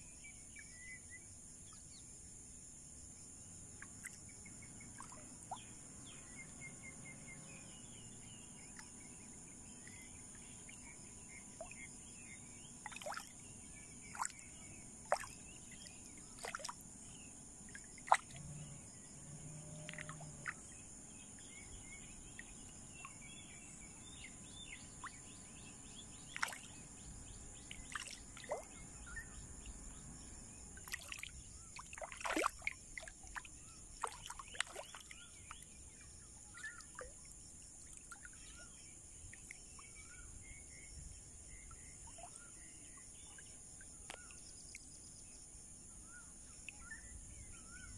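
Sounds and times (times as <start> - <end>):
fish splashing water: 12.8 - 13.3, 16.4 - 16.8, 17.9 - 18.5, 19.8 - 20.6, 26.3 - 26.7, 27.8 - 28.7, 30.8 - 33.4, 34.0 - 35.0
short bird chirps: 36.5 - 37.0.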